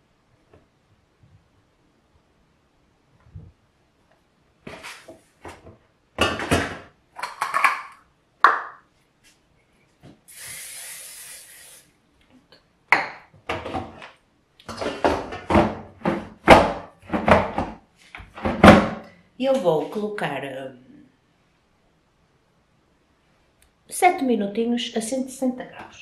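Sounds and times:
cooking oil spray hiss: 10.3 - 11.9.

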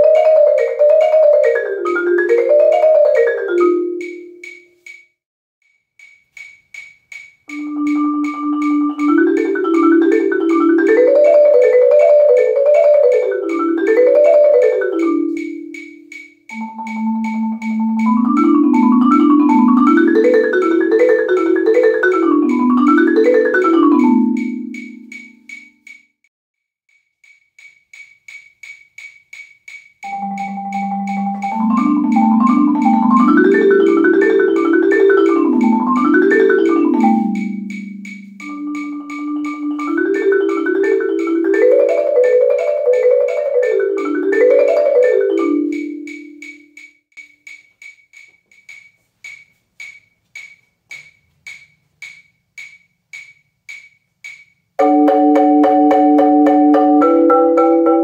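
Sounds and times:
marimba rolled patterns: 0.0 - 5.0, 7.5 - 25.9, 30.0 - 50.6, 51.5 - 58.0
steady click track: 3.2 - 10.9, 14.6 - 18.5, 23.2 - 26.1, 26.9 - 41.6, 45.1 - 54.7.

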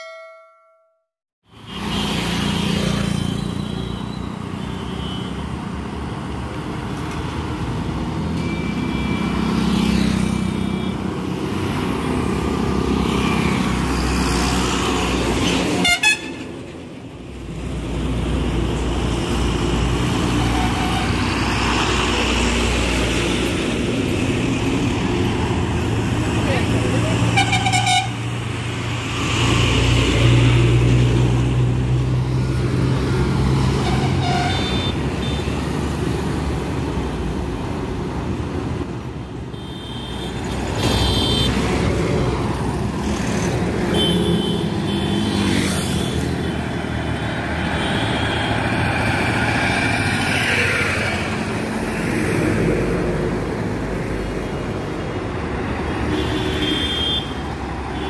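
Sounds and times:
highway traffic passing: 1.4 - 58.0
vehicle horns: 15.4 - 16.5, 20.3 - 21.3, 27.3 - 28.2, 33.7 - 35.7, 39.5 - 41.7, 43.8 - 46.6, 55.9 - 58.0.

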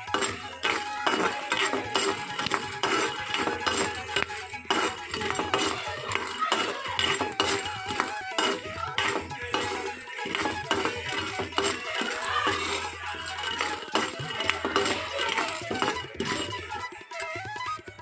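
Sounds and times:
spatula scraping metal pan: 0.0 - 16.7
instrumental music with beat: 0.0 - 18.0.

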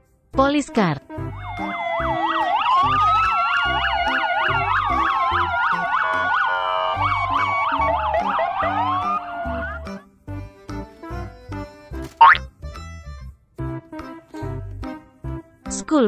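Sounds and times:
rhythmic music beat: 1.1 - 12.9
police sirens yelping and wailing: 1.2 - 10.1.

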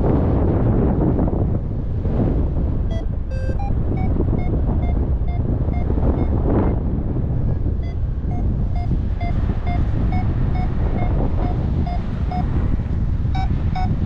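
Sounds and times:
wind rushing on microphone: 0.0 - 14.0
variometer beeping: 2.8 - 14.0.

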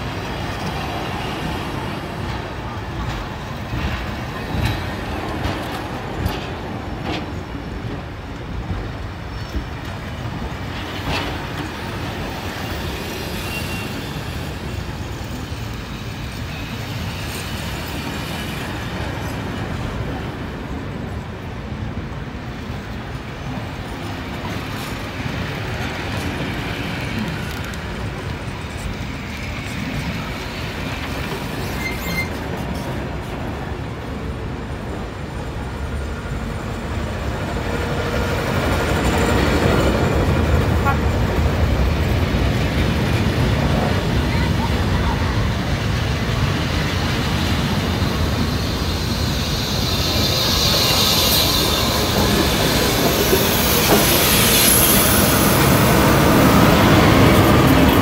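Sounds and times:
train wheels rumbling on rail: 0.0 - 58.0
faint high squeals: 13.0 - 14.5, 31.6 - 32.4, 48.5 - 52.9.

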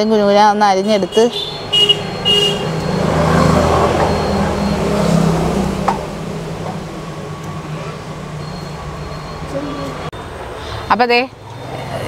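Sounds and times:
vehicle engine running: 0.9 - 10.1.

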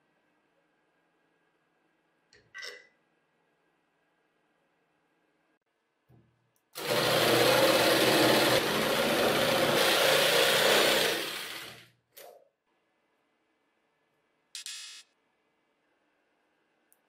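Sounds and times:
jigsaw cutting wood: 6.8 - 11.9.

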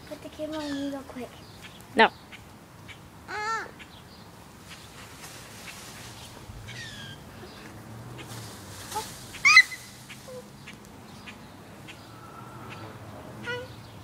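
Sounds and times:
bird chirping: 0.4 - 3.1, 9.0 - 14.0.

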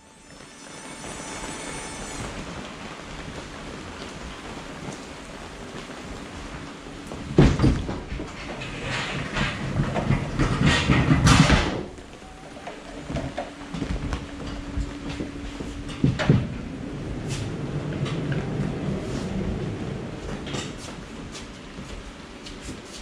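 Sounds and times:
pallet jack rolling and rattling: 3.9 - 14.6.

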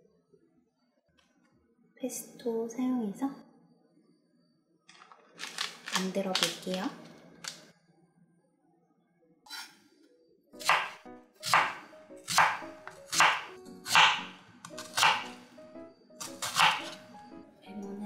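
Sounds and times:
knife slicing onion on board: 9.5 - 9.8, 10.6 - 15.4, 16.2 - 17.0.

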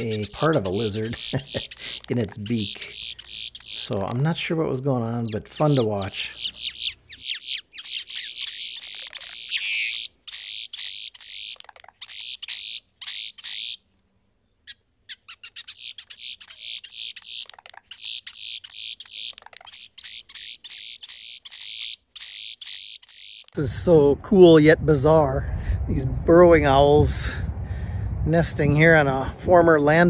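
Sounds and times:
grackles calling: 0.0 - 13.9, 14.6 - 23.6.

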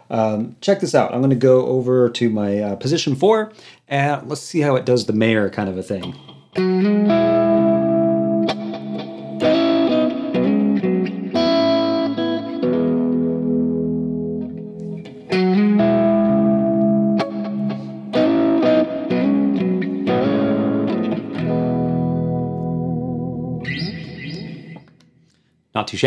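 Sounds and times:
electric guitar chords ringing: 6.1 - 25.2.

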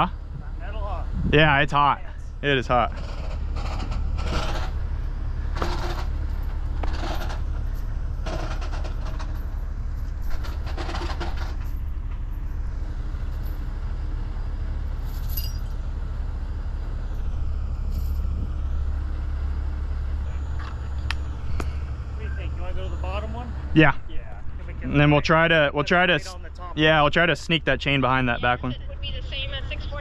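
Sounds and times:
diesel truck engines idling: 0.0 - 30.0
short clatters: 2.8 - 12.6.

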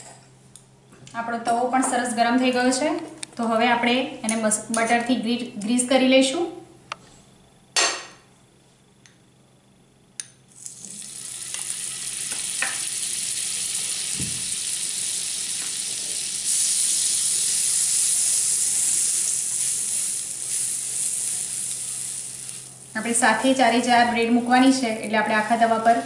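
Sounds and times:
butter sizzling in a pan: 10.5 - 24.9.

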